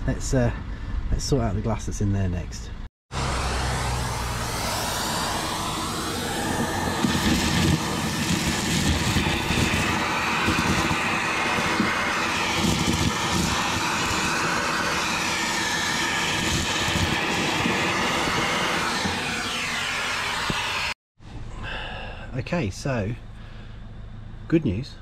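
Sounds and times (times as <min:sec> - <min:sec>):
vacuum cleaner running: 0:03.1 - 0:21.0.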